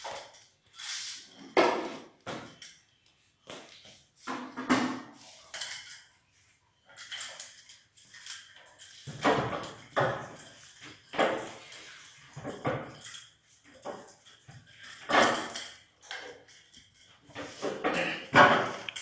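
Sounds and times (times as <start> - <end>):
chain rattling: 0.0 - 1.6, 5.4 - 6.2, 6.8 - 19.0
metal chair scraping on stone floor: 0.9 - 2.2.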